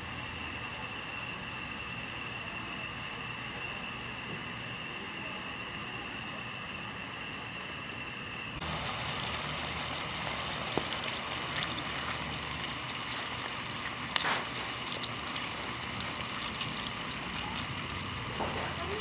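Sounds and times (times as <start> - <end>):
pan frying hiss: 8.6 - 19.0.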